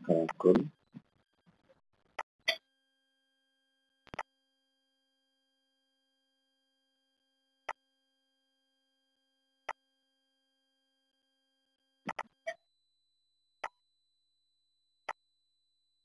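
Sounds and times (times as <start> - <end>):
computer mouse clicks: 12.1 - 12.3.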